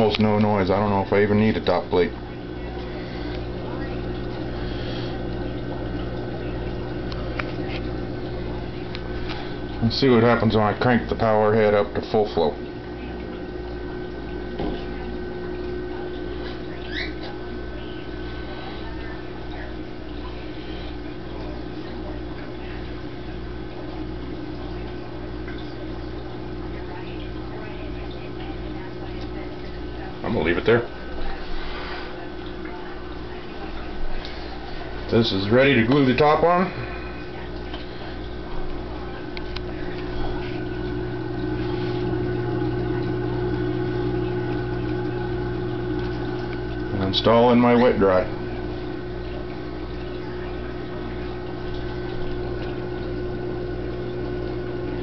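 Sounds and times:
pump motor hum: 0:00.0 - 0:55.0
water churning and gurgling: 0:00.0 - 0:55.0.

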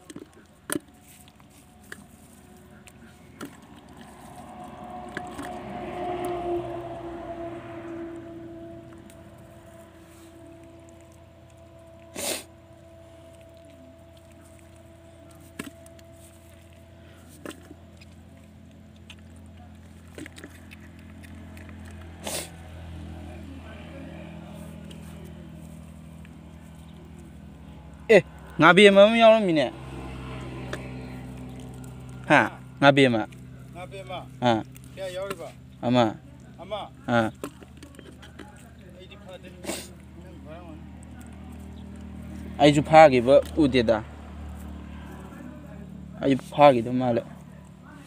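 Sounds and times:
steady low hum: 0:00.0 - 0:46.2.

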